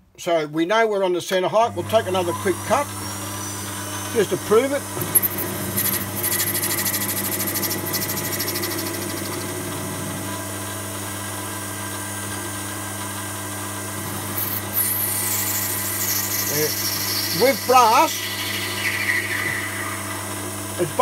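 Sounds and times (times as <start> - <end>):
lathe motor hum: 1.7 - 21.0
high hissing cutting sound: 14.4 - 21.0.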